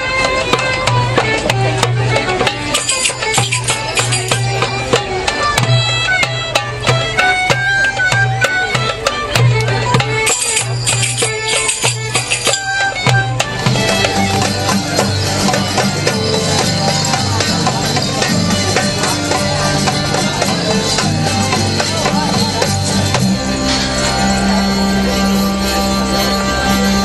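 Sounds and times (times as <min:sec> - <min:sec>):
frame drum beats: 0:00.0 - 0:25.3
pipe melody over drone: 0:13.0 - 0:27.0.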